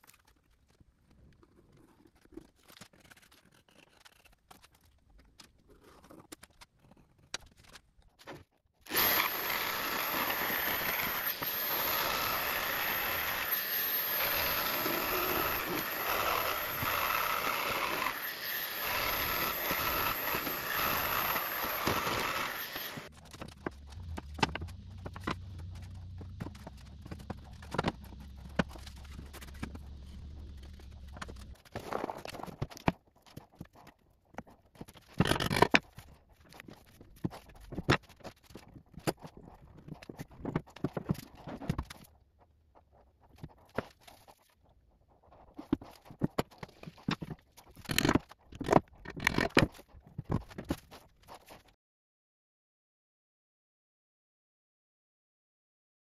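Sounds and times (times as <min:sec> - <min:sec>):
jigsaw cutting wood: 0:08.9 - 0:32.9, 0:35.0 - 0:36.0, 0:46.9 - 0:49.8
low hum: 0:23.0 - 0:31.6.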